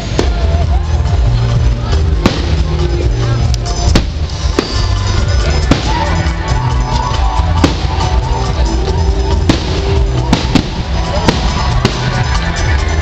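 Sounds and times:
live band music with heavy bass: 0.0s - 13.0s
fireworks bangs: 3.8s - 6.4s, 7.2s - 8.4s, 9.3s - 12.9s.

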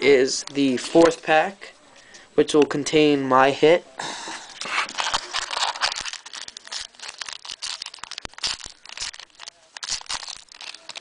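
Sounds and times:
foil wrapper crinkling: 4.6s - 11.0s.

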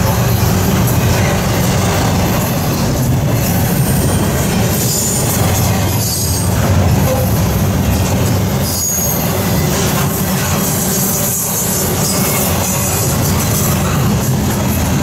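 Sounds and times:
freight train rumbling: 0.0s - 15.0s
high wheel squeals: 3.4s - 14.9s.

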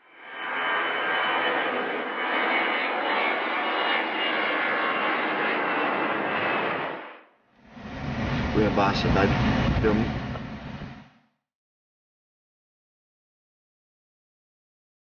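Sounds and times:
high engine whine: 0.0s - 11.2s
jet engines running: 0.0s - 11.2s.

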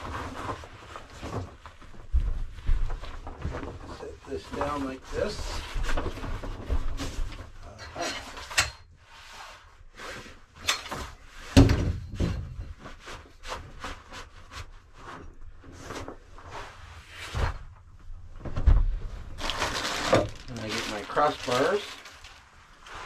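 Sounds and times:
nylon fabric rustling: 12.7s - 23.0s.

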